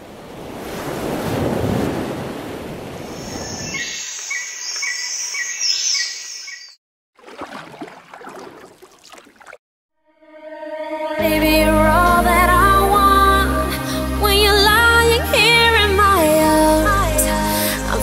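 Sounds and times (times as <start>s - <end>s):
surf washing in: 0.0s - 3.7s
bird chirping: 3.1s - 6.8s.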